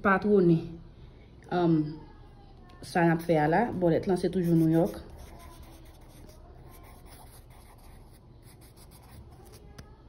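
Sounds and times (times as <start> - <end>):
pencil scratching on paper: 4.2 - 9.7.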